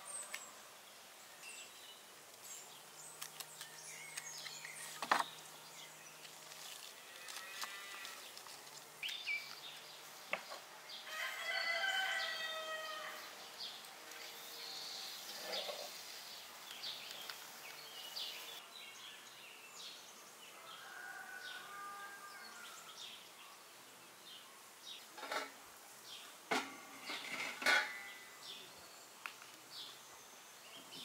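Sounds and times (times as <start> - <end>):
small birds chirping: 0.0 - 20.9, 22.4 - 31.0
kitchenware knocks and clinks: 26.5 - 28.1.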